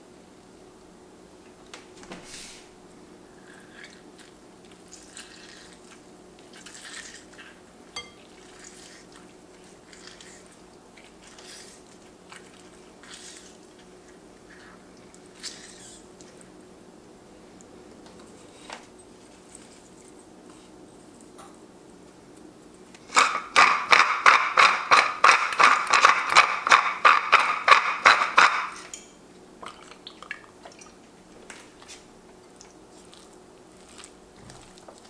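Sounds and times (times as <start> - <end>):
faint steady hum: 0.0 - 35.0
lemon juice dripping and squishing: 32.6 - 35.0.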